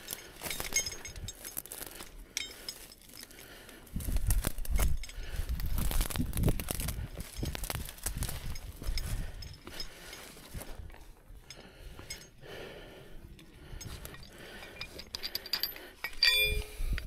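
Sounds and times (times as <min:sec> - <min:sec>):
dry brush rustling and snapping: 0:00.0 - 0:11.2
metal hardware clinking: 0:00.0 - 0:12.4, 0:13.4 - 0:17.0.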